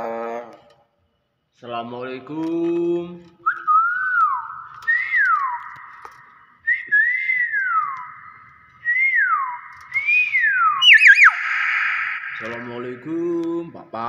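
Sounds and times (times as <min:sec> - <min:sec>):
myna whistling: 0:03.5 - 0:13.1.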